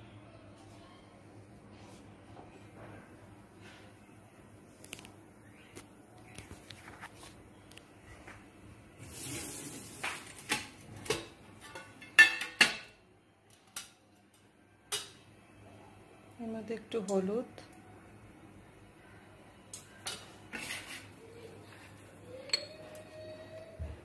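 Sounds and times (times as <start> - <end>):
kitchen utensils clinking: 9.4 - 13.0, 22.3 - 23.1.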